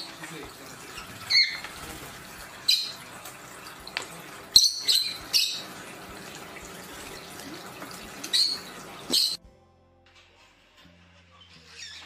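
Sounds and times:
birds chirping shrilly: 0.8s - 1.8s, 4.5s - 5.9s, 8.1s - 9.4s.

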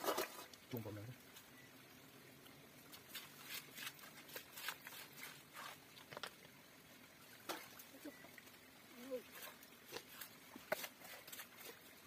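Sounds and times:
hands digging among wet stones: 9.2s - 12.0s.

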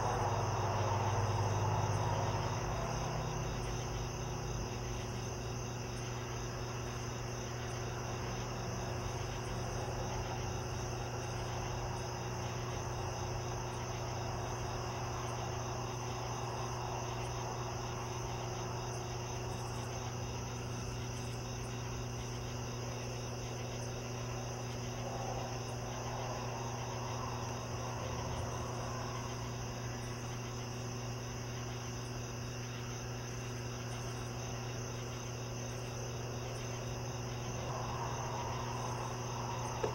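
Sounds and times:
crickets chirping: 0.0s - 39.9s
low hum: 35.7s - 39.9s.

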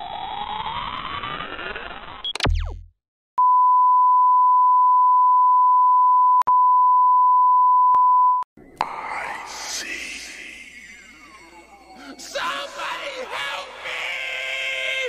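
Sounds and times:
glitchy zap with low buzz: 0.2s - 3.0s
steady test-tone beep: 3.4s - 8.4s
rising synthesized sweep: 8.6s - 14.9s.

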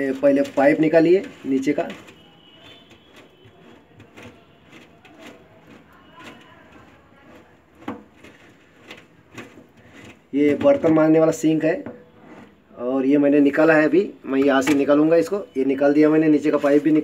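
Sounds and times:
plastic threads scraping and clicking: 0.0s - 12.5s.

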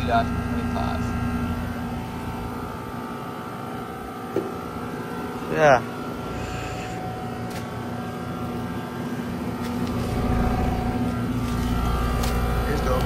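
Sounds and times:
compressor hum: 0.0s - 13.0s
condenser fan: 0.0s - 13.0s.

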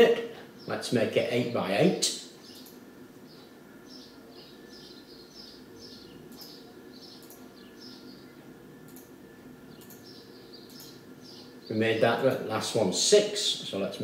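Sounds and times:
bird chirping: 0.0s - 12.8s
low steady hum: 0.0s - 14.0s
faint clicks: 2.5s - 2.8s, 8.9s - 9.1s, 9.8s - 11.0s.

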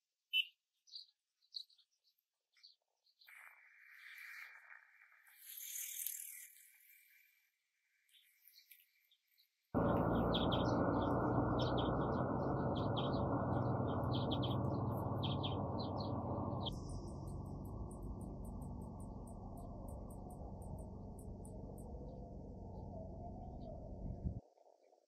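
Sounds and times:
small birds chirping: 0.3s - 4.5s, 8.1s - 24.4s
low rushing background: 9.8s - 24.4s.

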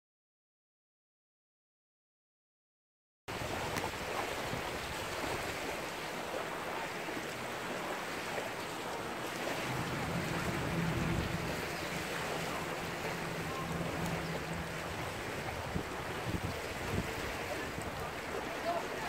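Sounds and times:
shallow water lapping: 3.3s - 19.0s
wind: 3.3s - 19.0s
low engine hum: 9.1s - 18.6s.

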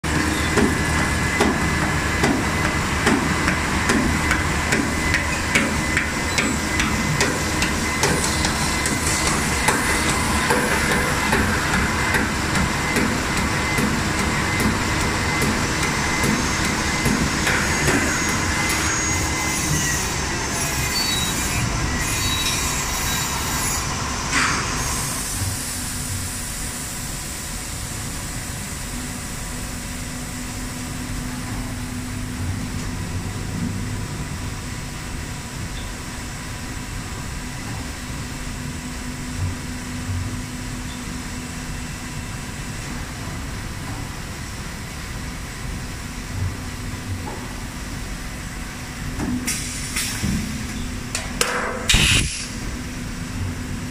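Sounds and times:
metal squealing and scraping: 17.4s - 23.9s.

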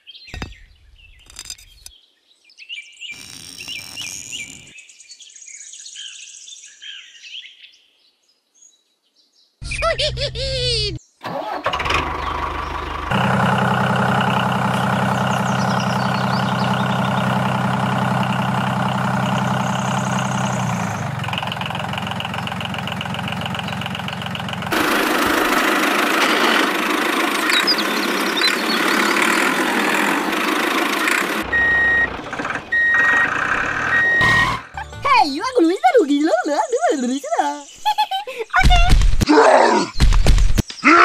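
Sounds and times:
tractor engine running: 11.2s - 35.4s
rough hissy engine: 11.3s - 34.2s
reversing beeps: 31.5s - 32.1s, 32.7s - 34.7s.

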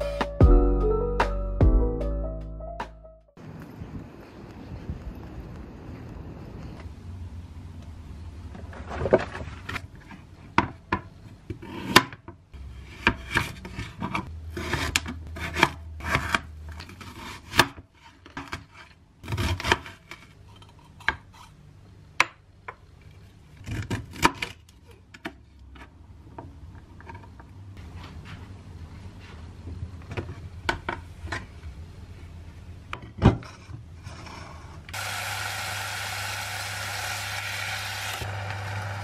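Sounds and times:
knife slicing and scraping: 11.6s - 21.6s.

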